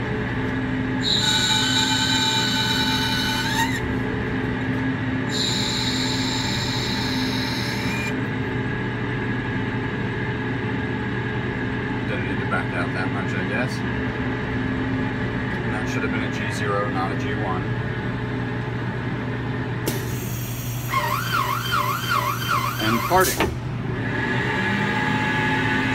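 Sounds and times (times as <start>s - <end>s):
cutting tool squealing: 1.0s - 3.9s, 5.3s - 8.2s, 19.9s - 23.5s
lathe humming: 1.0s - 4.2s, 5.2s - 8.3s, 20.4s - 24.1s.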